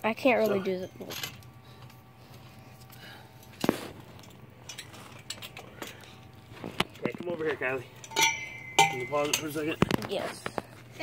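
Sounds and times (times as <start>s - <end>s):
sharp metallic clank: 8.0s - 9.8s
steel tubes knocking together: 8.0s - 10.0s.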